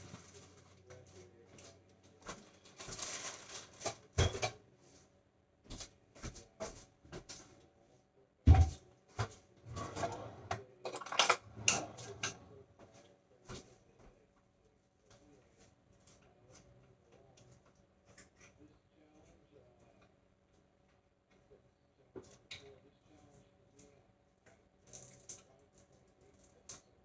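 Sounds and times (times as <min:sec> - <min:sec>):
dishes clattering: 0:03.8 - 0:04.6, 0:09.7 - 0:12.5.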